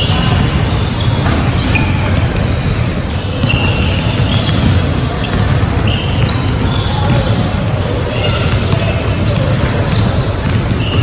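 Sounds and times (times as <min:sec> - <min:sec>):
basketballs bouncing on hardwood: 0:00.0 - 0:11.0
sneakers squeaking: 0:00.0 - 0:11.0.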